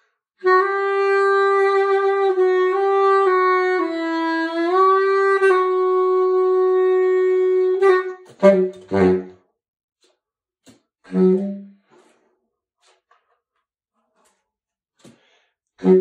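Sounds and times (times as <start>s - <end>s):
baritone saxophone: 0.4s - 9.4s, 11.1s - 12.0s, 15.8s - 16.0s.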